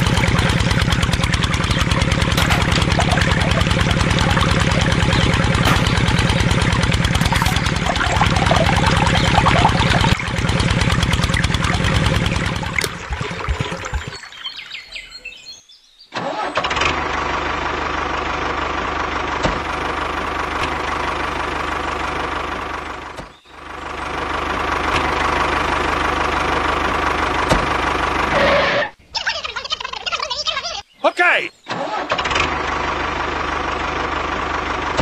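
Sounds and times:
engine running: 0.0 - 15.5, 16.2 - 29.0, 31.7 - 35.0.

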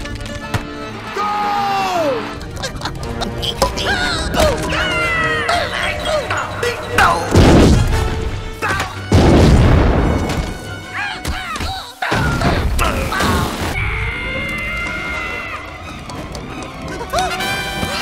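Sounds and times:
film soundtrack music: 0.0 - 18.0
rock crashing and booming: 7.3 - 8.3, 9.1 - 10.7.

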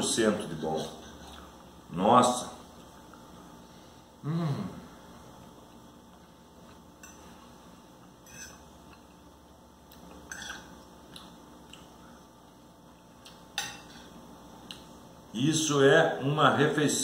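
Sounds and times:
cutlery clinking on a plate: 8.2 - 8.7, 10.3 - 10.7.

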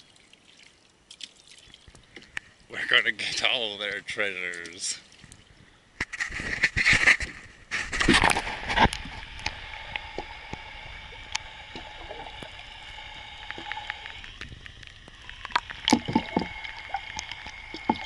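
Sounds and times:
water splashing against boat hull: 15.5 - 18.0.

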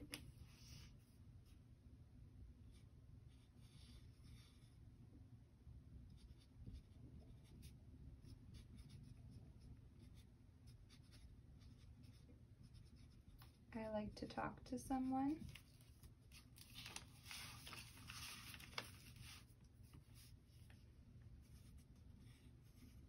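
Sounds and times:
pencil scratching on paper: 6.1 - 13.6.

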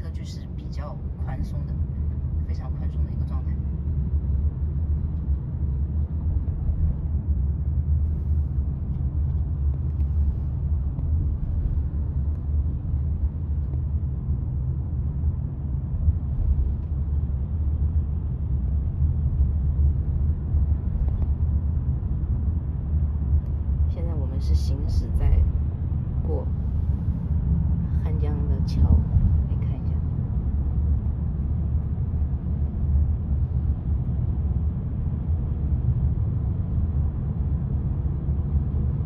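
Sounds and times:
road and tyre rumble: 0.0 - 39.0.

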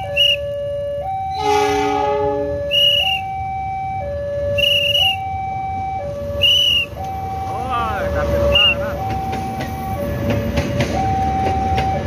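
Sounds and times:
diesel locomotive horn: 0.0 - 0.5, 1.3 - 3.4, 4.4 - 5.3, 6.2 - 7.0
level crossing two-tone alarm: 0.0 - 12.0
shrill whistle-like chirps: 0.1 - 0.4, 2.7 - 3.4, 4.6 - 5.3, 6.4 - 7.0.

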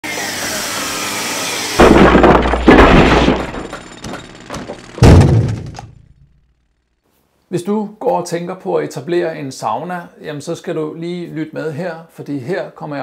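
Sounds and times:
heavy low hits: 5.0 - 6.2.

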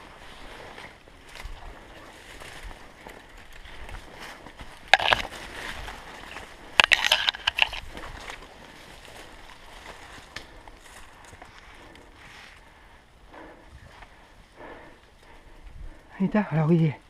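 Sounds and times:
dry leaves rustling and crackling: 0.0 - 12.6
branches scraping: 0.0 - 12.7.

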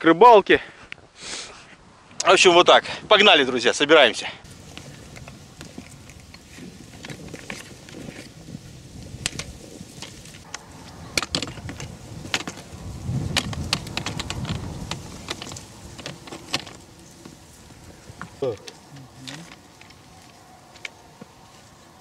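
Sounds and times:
wind rumbling on microphone: 4.4 - 22.0
fishing gear clicking and knocking: 4.5 - 8.4, 9.0 - 21.4.

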